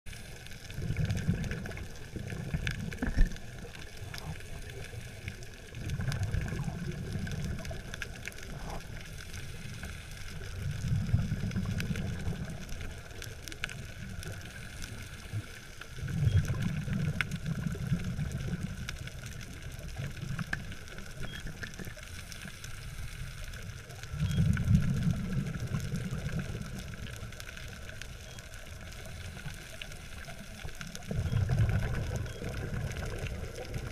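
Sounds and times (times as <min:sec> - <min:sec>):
faint crackle of clicks: 0:00.1 - 0:33.9
underwater breath bubbles: 0:31.0 - 0:33.9.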